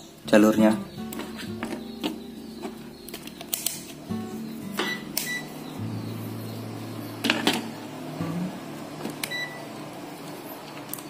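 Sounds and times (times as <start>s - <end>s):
low steady hum: 2.3s - 10.7s.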